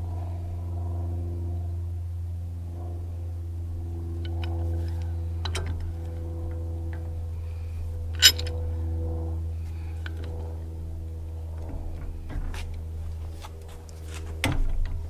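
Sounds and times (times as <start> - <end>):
low hum with held tones: 0.0 - 15.0
wrench clinking on metal nut: 8.2 - 8.5
sharp metallic clank: 8.2 - 8.6.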